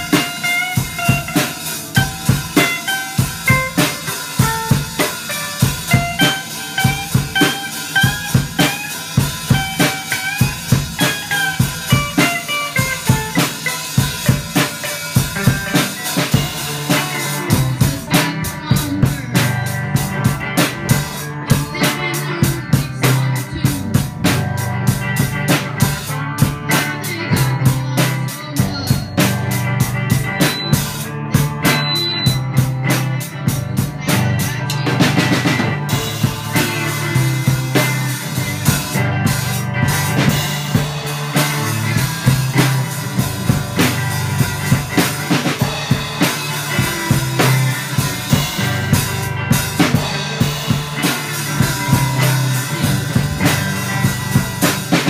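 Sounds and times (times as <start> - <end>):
drum kit with cymbals: 0.0 - 55.0
electric guitars: 0.0 - 55.0
rock band playing live: 0.0 - 55.0.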